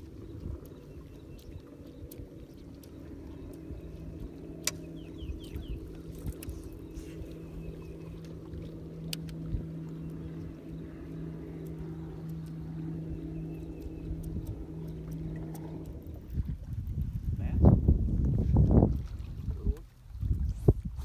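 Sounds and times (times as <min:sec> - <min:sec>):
electric motor humming: 0:00.0 - 0:17.0
rumble of wind and water: 0:00.0 - 0:21.0
faint clicks: 0:00.4 - 0:07.3, 0:08.2 - 0:16.4.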